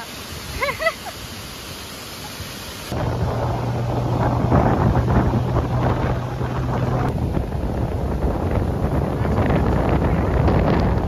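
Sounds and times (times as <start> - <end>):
boat engine drone: 2.9 - 11.0
wind rushing over microphone: 2.9 - 11.0.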